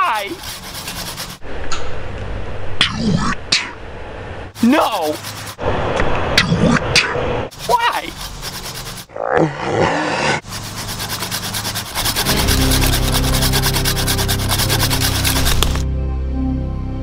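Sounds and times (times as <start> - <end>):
pruning saw cutting branch: 0.0 - 1.4, 7.5 - 9.1, 10.4 - 15.8
background music with bass line: 12.2 - 17.0.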